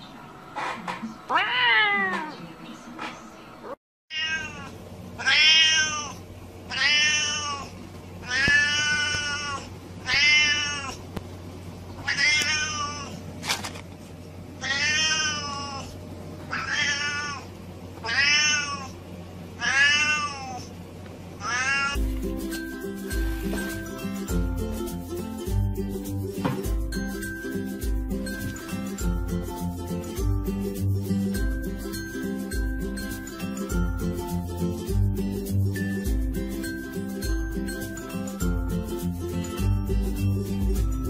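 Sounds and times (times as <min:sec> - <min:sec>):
cat meowing loudly: 0:01.3 - 0:02.3, 0:04.1 - 0:11.0, 0:12.0 - 0:13.1, 0:14.6 - 0:15.9, 0:16.5 - 0:19.0, 0:19.6 - 0:20.6, 0:21.4 - 0:22.0.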